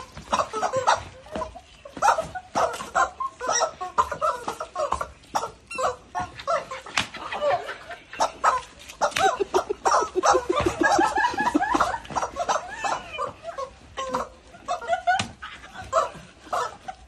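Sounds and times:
rubber chickens squealing: 0:00.0 - 0:17.0
women laughing: 0:05.8 - 0:17.0
broom slapping the ground: 0:06.2 - 0:12.6.

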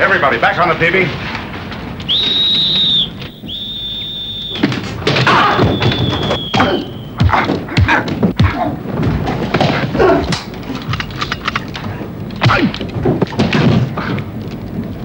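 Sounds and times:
shrill hand whistle blasts: 0:02.1 - 0:04.8, 0:05.4 - 0:07.2.

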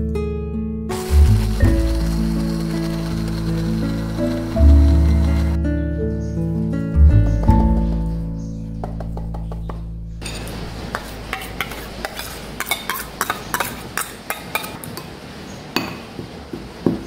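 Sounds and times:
background music: 0:00.0 - 0:10.2
spoon clinking on dishes: 0:10.2 - 0:15.1.

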